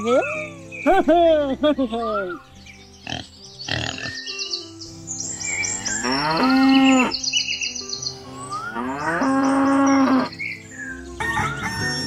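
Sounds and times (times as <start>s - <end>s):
high chirping: 1.6s - 12.0s
cow mooing: 5.9s - 7.1s, 8.7s - 10.3s.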